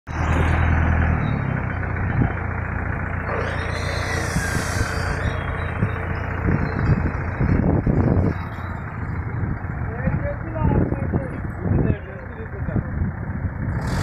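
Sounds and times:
motorcycle engine hum: 0.1s - 14.0s
street noise: 0.1s - 14.0s
rushing hiss: 3.3s - 5.2s, 13.8s - 14.0s.

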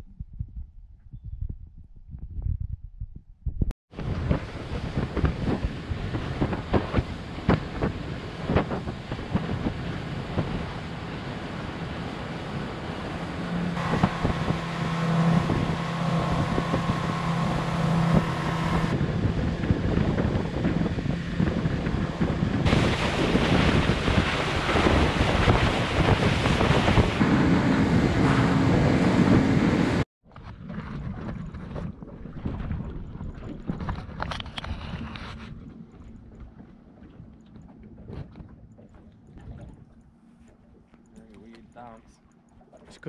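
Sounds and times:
wind buffeting microphone: 0.0s - 43.0s
outboard motor drone: 3.9s - 43.0s
water lapping: 4.0s - 29.6s, 30.3s - 43.0s
spray rushing along hull: 4.0s - 30.0s.

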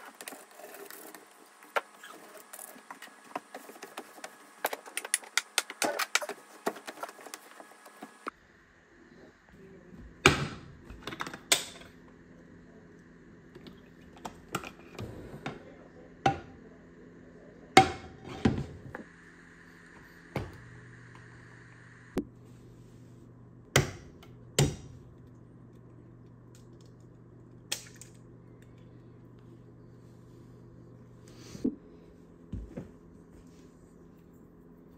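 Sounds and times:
low steady hum: 0.0s - 34.9s.

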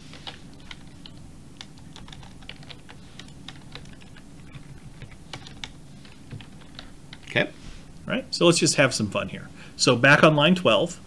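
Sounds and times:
steady low hum: 0.0s - 11.0s
computer keyboard typing: 0.1s - 7.4s.

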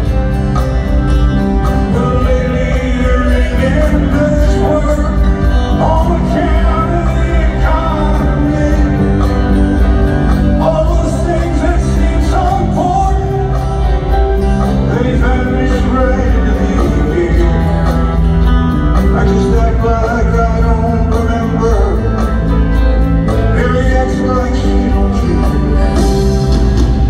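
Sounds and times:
live rock band: 0.0s - 27.0s
man singing over pa: 1.8s - 9.4s, 14.7s - 18.0s, 23.3s - 26.2s.

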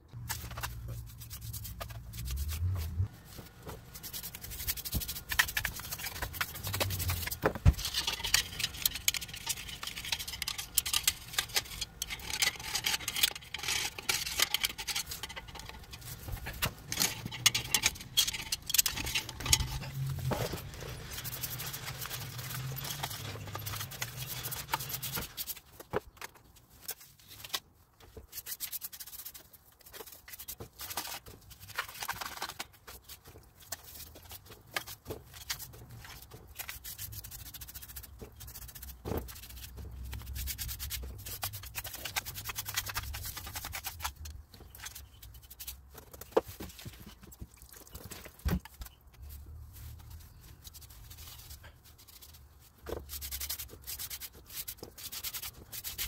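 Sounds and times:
brush scrubbing metal: 0.2s - 25.8s, 26.8s - 48.4s, 49.7s - 56.0s.

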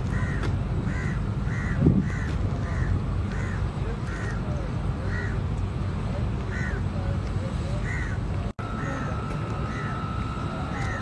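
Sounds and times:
crows cawing: 0.1s - 4.4s, 5.0s - 5.4s, 6.5s - 6.8s, 7.8s - 8.2s, 8.8s - 10.0s, 10.7s - 11.0s.

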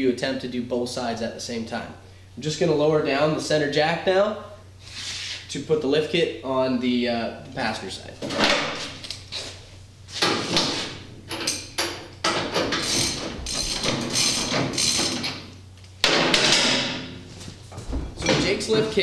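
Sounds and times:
metal jack clanking and scraping: 11.3s - 17.0s.

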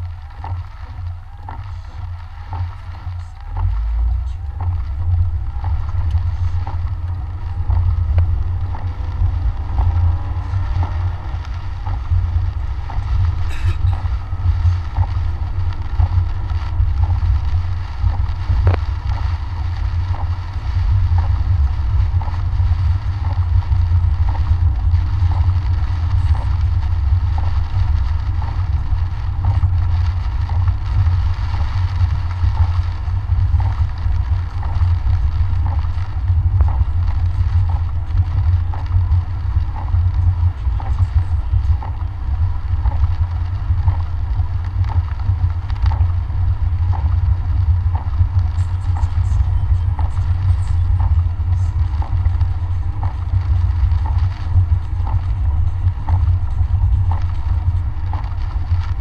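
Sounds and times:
faint repeating tick: 0.0s - 59.0s
rain on windshield: 0.0s - 59.0s
road and engine rumble: 0.0s - 59.0s
windshield wipers: 0.0s - 59.0s.

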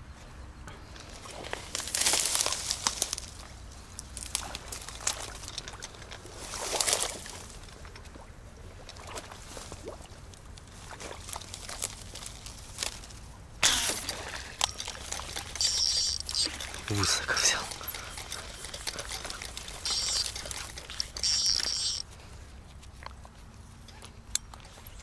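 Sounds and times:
small clicks and drips: 2.8s - 13.0s, 14.0s - 22.0s
water sloshing and splashing: 4.2s - 22.0s.

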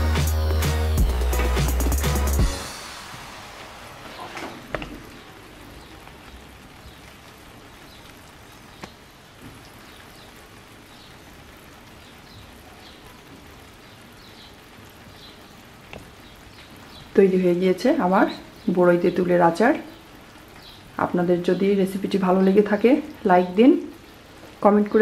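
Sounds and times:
background music: 0.0s - 5.0s
faint steady hiss: 0.0s - 25.0s.

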